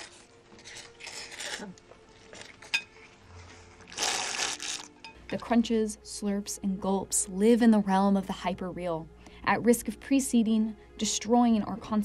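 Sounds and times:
man slurping noodles: 0:03.9 - 0:04.9.

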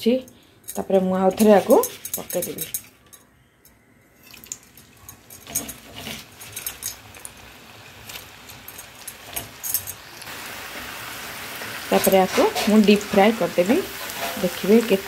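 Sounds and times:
potato sticks clinking into wok: 0:00.7 - 0:02.9
oil sizzling: 0:04.2 - 0:15.0.

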